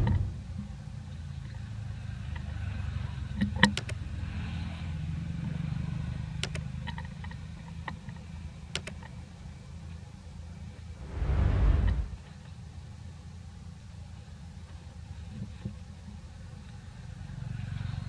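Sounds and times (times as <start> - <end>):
sharp clicks: 6.4 - 6.6, 8.7 - 9.1
road traffic rumble: 10.9 - 12.3.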